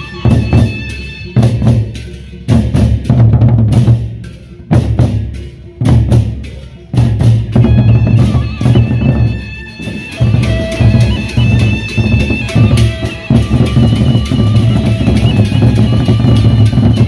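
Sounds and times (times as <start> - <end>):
large barrel drums beaten fast: 0.2 - 17.0
ringing higher tones: 7.6 - 17.0.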